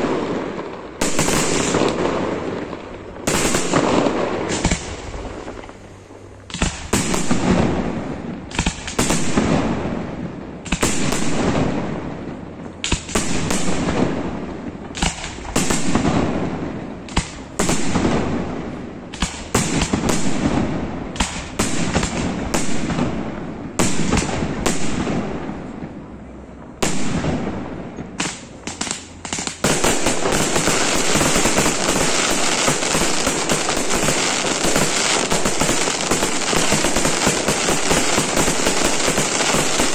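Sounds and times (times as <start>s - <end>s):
firework shells bursting: 0.0s - 9.9s, 26.8s - 39.9s.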